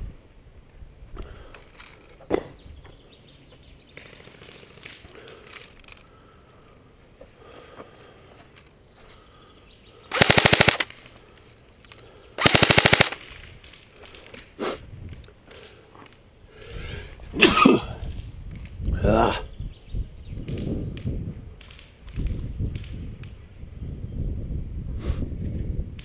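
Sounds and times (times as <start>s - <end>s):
airsoft rifle firing bursts: 10.1s - 11.0s, 12.4s - 13.4s.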